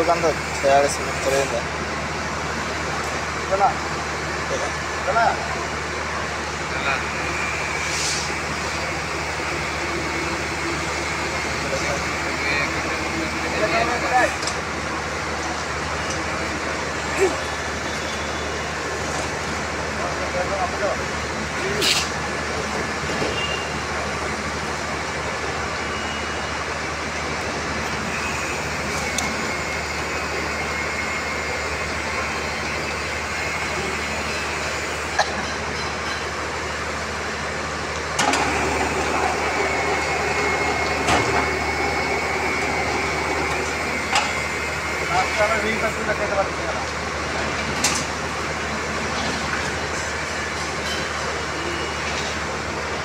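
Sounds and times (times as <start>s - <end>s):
rebar bending machine humming: 21.0s - 53.0s
machine motor humming: 38.2s - 46.3s.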